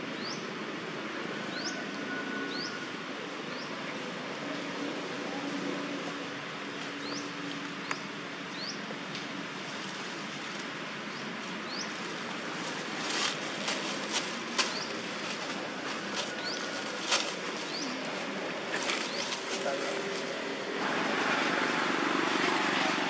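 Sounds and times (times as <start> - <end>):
steady outdoor hiss: 0.0 - 23.0
footsteps crunching dry leaves: 11.2 - 22.7.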